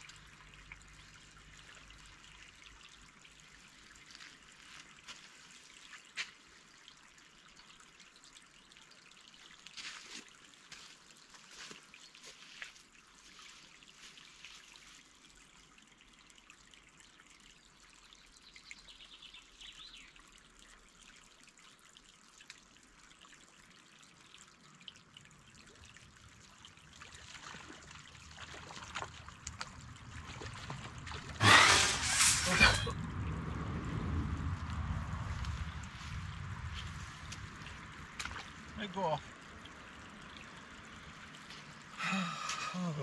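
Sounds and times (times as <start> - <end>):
water trickling and lapping: 0.0 - 43.0
fish splashing at surface: 30.5 - 32.9.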